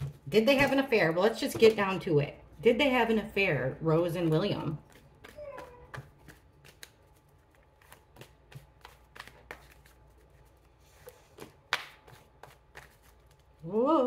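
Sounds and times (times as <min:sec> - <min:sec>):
cards being shuffled: 0:04.8 - 0:13.6.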